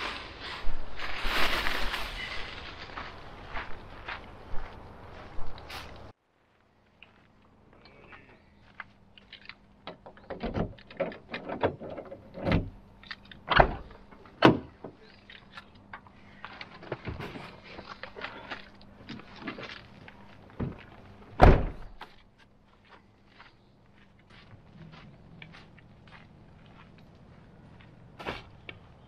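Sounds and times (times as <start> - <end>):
rustling: 0.0 - 3.8
knocks and clunks in van: 9.9 - 12.8, 13.5 - 15.0, 21.4 - 22.0.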